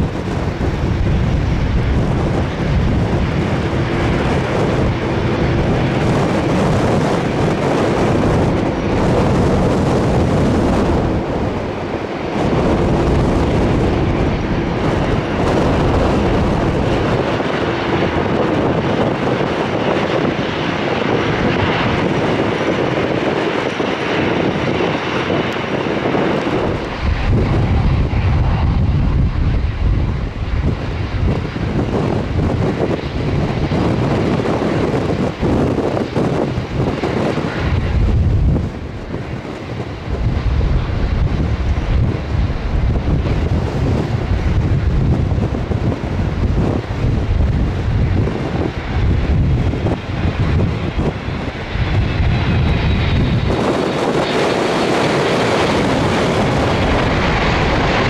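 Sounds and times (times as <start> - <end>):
jet engines roaring: 0.0 - 58.0
wind buffeting microphone: 0.0 - 58.0.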